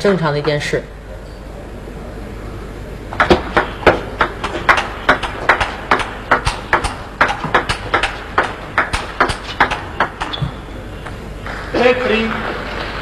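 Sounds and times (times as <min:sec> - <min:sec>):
table tennis ball clicking: 0:03.2 - 0:10.4.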